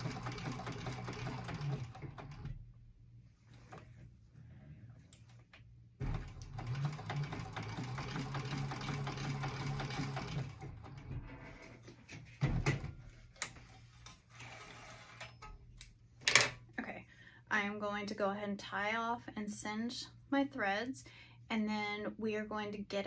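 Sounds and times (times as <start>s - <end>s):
industrial sewing machine running: 0.0s - 2.5s, 6.0s - 11.2s.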